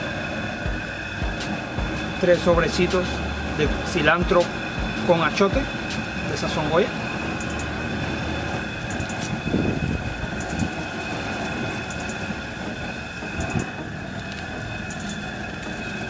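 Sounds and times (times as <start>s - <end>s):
steady rumbling hum: 0.0s - 16.0s.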